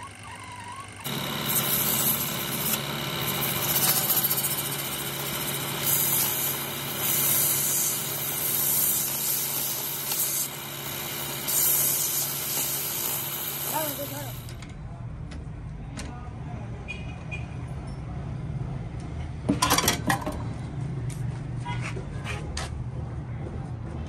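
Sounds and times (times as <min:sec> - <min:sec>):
lathe humming: 0:00.0 - 0:14.6.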